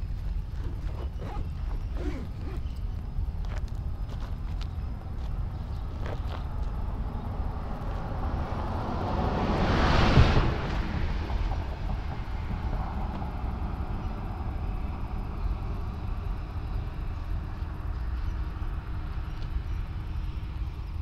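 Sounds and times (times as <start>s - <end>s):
steady low rumble: 0.0s - 21.0s
vehicle passing: 5.5s - 17.9s.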